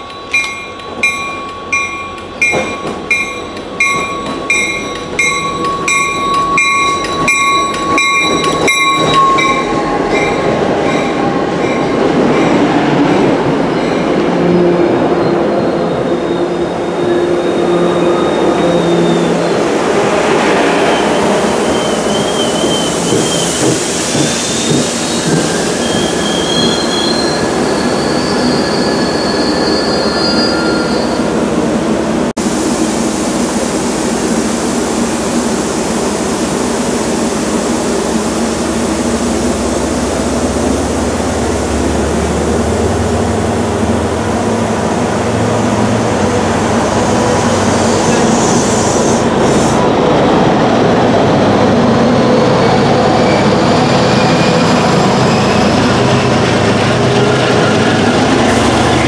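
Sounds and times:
train wheels squealing: 0.0 - 12.7, 13.6 - 19.6, 20.5 - 31.4, 52.0 - 59.0
train rumbling: 0.0 - 59.0.

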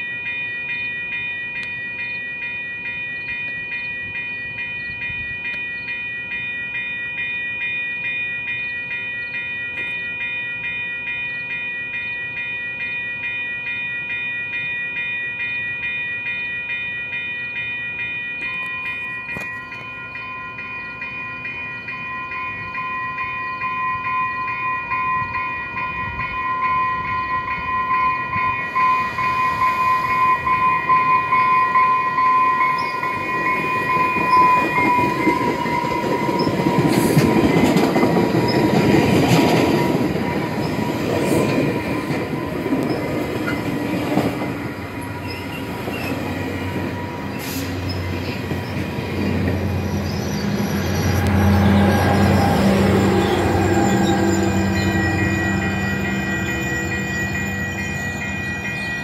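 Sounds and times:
train high tone: 0.0 - 59.0
train wheels rumbling and clattering: 32.7 - 59.0
wheels clicking over rail joints: 32.8 - 54.7.

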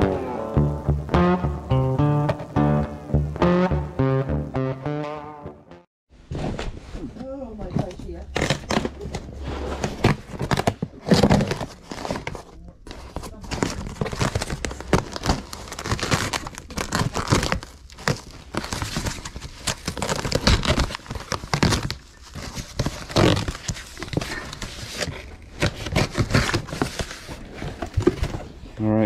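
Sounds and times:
cardboard tearing and crinkling: 8.3 - 28.5
packing tape ripping: 10.1 - 27.5.

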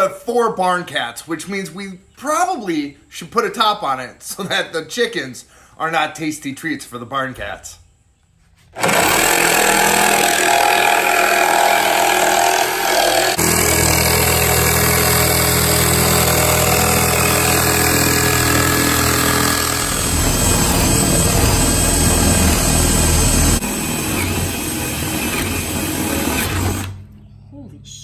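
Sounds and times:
jigsaw cutting wood: 8.7 - 27.0
power drill boring wood: 8.7 - 27.0.

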